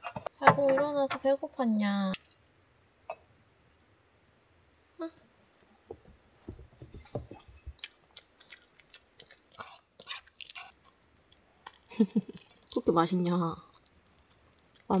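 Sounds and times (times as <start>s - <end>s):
dog chewing and crunching: 7.4s - 11.0s, 11.6s - 15.0s.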